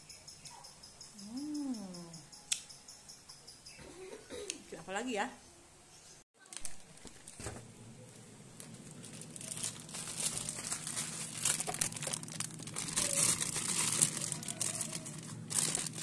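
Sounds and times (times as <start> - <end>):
plastic crinkling and rustling: 6.4 - 16.0
low steady hum: 6.8 - 16.0.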